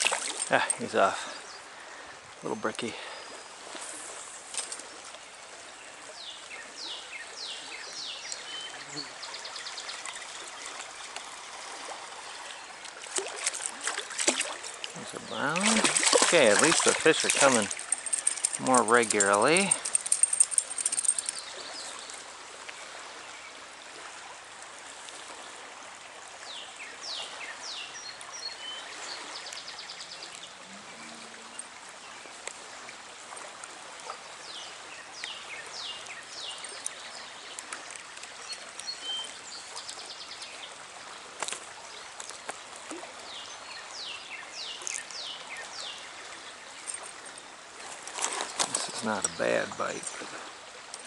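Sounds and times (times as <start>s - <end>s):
birds chirping: 0.0s - 22.2s, 34.1s - 51.0s
stream water running: 0.0s - 51.0s.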